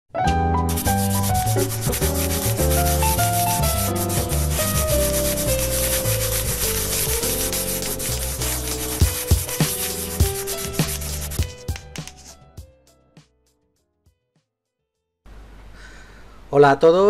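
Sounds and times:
scratchy scribbling: 0.7s - 12.3s.

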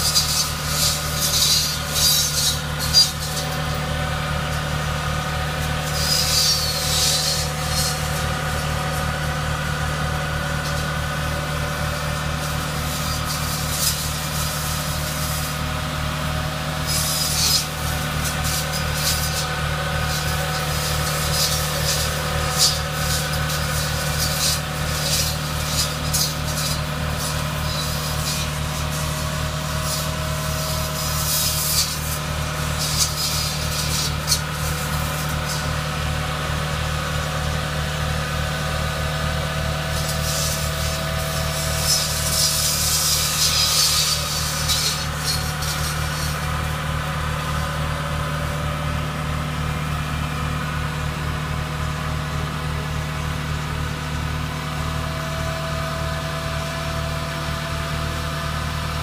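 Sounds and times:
tractor engine running: 0.0s - 59.0s
saws hissing through branches: 5.4s - 15.9s, 16.8s - 36.0s, 39.2s - 48.4s.

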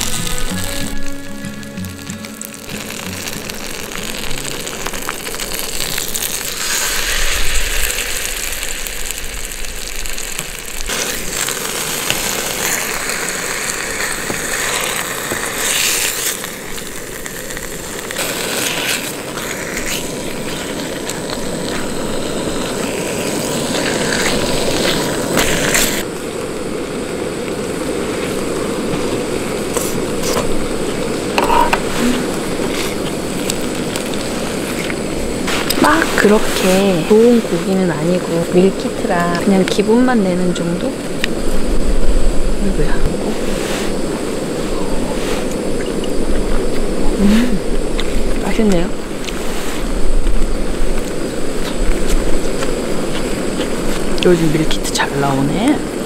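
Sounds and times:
meat sizzling in a frying pan: 1.9s - 26.0s.

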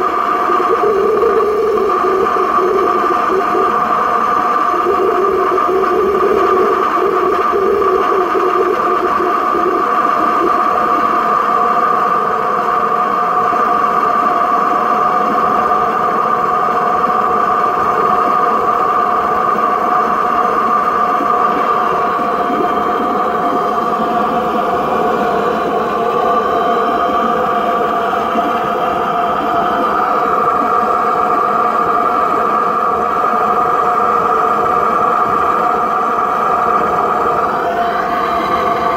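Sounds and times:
low hum: 0.0s - 12.0s, 20.2s - 30.0s
steady tones: 0.0s - 12.2s, 20.1s - 30.0s.

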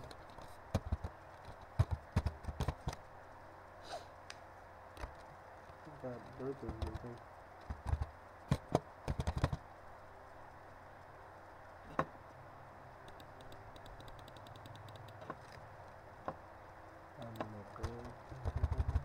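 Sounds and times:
faint steady hum: 0.0s - 19.0s
keyboard keystrokes: 6.6s - 9.6s, 13.1s - 15.4s, 17.2s - 19.0s.

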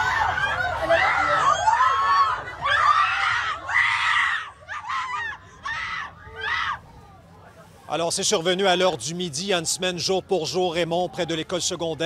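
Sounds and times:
teenagers screaming and shouting: 0.0s - 7.3s.

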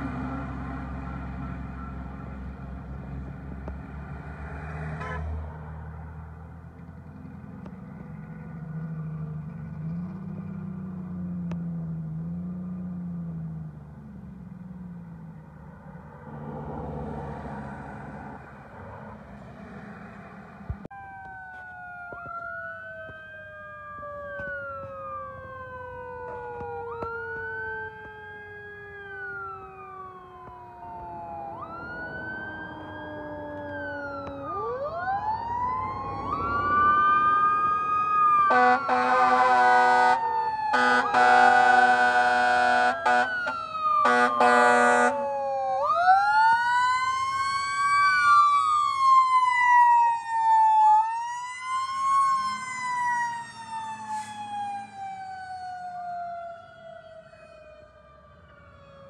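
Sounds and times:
air horn blasts: 4.9s - 5.4s, 38.5s - 45.2s
electronic siren wail: 20.9s - 59.0s.

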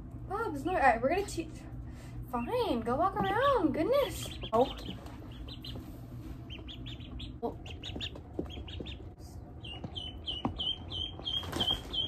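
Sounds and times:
ducklings peeping: 2.2s - 12.0s.

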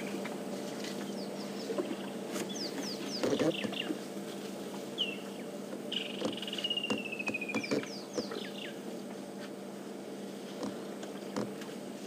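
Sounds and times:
kingfisher calling: 5.9s - 8.8s.

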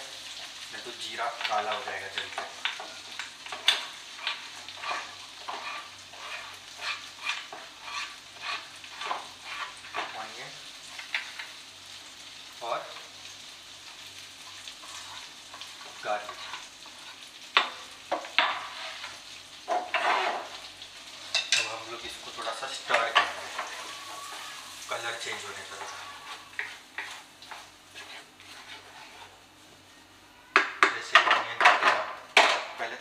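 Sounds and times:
onion sizzling in a pan: 0.0s - 33.0s
scrapes and knocks in pan: 3.5s - 10.2s, 14.8s - 20.6s, 25.8s - 29.4s.

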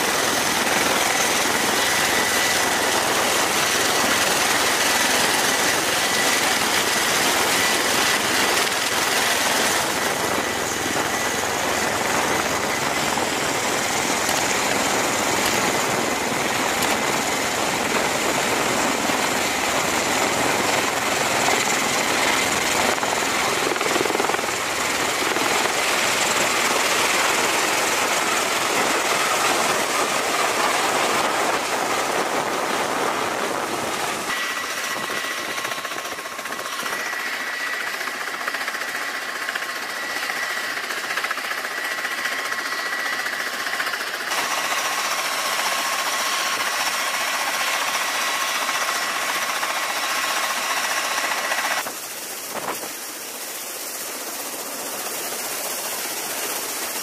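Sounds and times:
high turbine whine: 0.0s - 57.0s
tiltrotor aircraft rotor noise: 0.0s - 57.0s.

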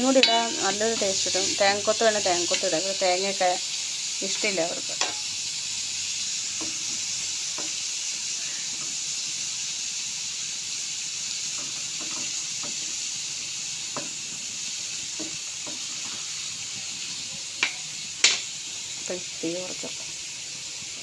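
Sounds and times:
food sizzling in oil: 0.0s - 21.0s
metal spoon clicking on pan: 0.1s - 1.1s, 4.4s - 5.3s, 17.6s - 18.5s.

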